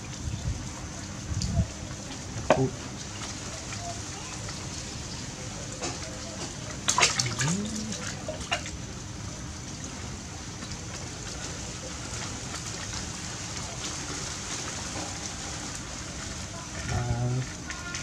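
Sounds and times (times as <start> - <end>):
water sloshing in plastic basin: 5.8 - 8.8.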